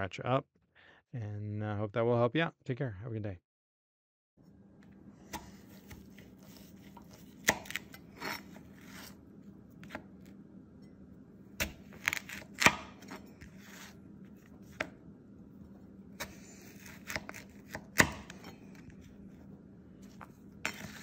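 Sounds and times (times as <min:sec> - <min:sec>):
knife chopping on plastic board: 0:05.2 - 0:09.2, 0:09.8 - 0:10.2, 0:11.6 - 0:13.9, 0:14.6 - 0:15.0, 0:16.2 - 0:18.9, 0:20.1 - 0:21.0.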